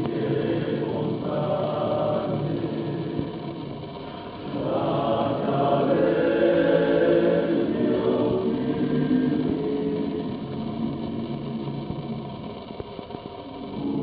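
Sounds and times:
male choir singing in harmony: 0.0 - 3.6, 4.4 - 11.4, 13.8 - 14.0.

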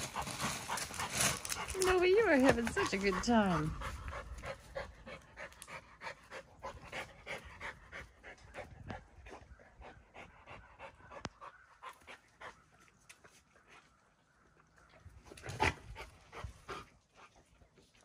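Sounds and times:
dog panting quickly: 0.0 - 12.6.

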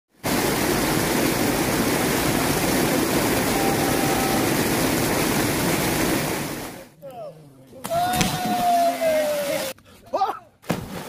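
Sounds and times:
water rushing over weir: 0.1 - 6.9.

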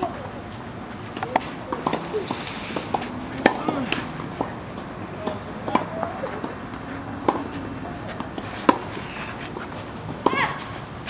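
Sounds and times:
tennis ball struck by racket: 1.2 - 10.7
ball bouncing knocks: 2.9 - 6.6, 7.2 - 8.9.

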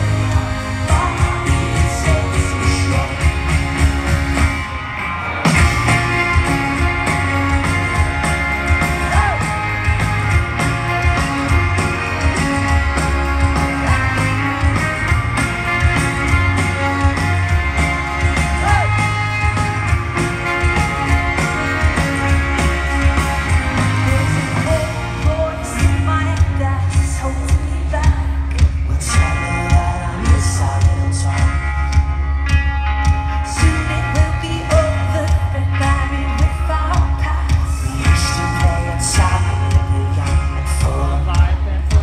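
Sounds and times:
person singing: 0.0 - 4.1, 5.6 - 10.1, 20.7 - 32.0, 33.3 - 42.0
live rock band playing: 0.0 - 42.0.

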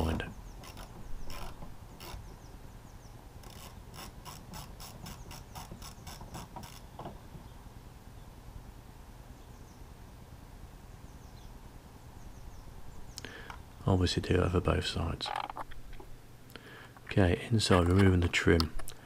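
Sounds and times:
socket ratchet clicking: 0.6 - 2.3, 3.4 - 6.9.

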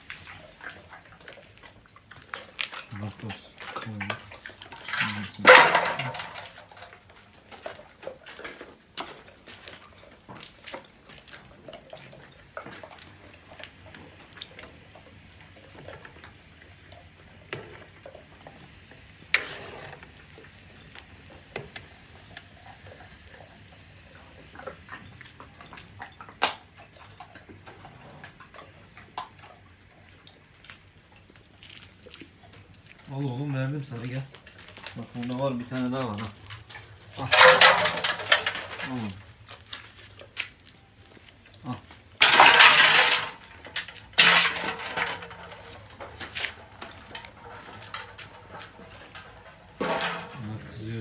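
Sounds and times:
dogs gnawing on bones: 0.0 - 5.8, 6.6 - 44.2
loud clatter: 5.0 - 6.5, 37.2 - 39.2, 42.2 - 43.5.

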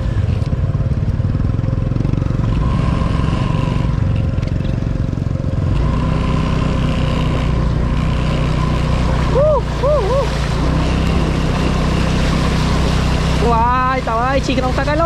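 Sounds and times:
motorbike engine running: 0.0 - 15.0
water swishing and spraying: 5.1 - 15.0.

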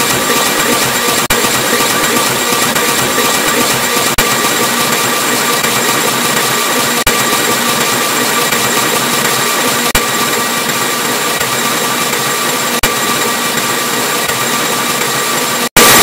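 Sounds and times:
distorted digital noise: 15.8 - 16.0.

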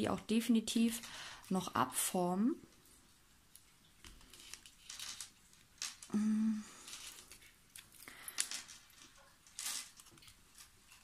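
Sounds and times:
resin mold crinkling and rustling: 0.0 - 11.0
person humming: 6.1 - 6.8.

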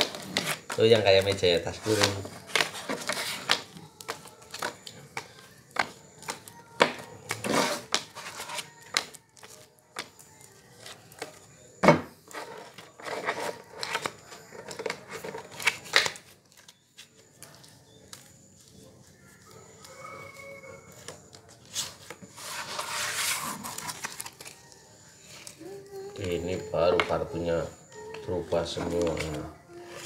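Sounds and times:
playing cards shuffled and dealt: 0.0 - 10.2, 21.0 - 24.6.

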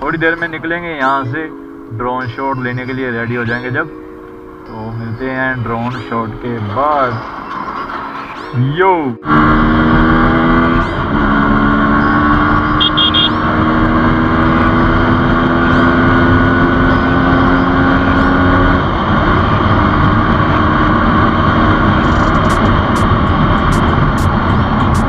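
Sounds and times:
motorcycle engine cruising: 5.2 - 25.0
quick triple beep: 12.8 - 13.3
wind rush on microphone: 18.6 - 25.0.

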